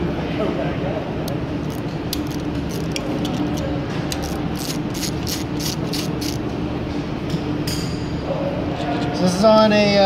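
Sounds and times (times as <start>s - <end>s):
ratchet wrench clicking: 1.6s - 6.4s.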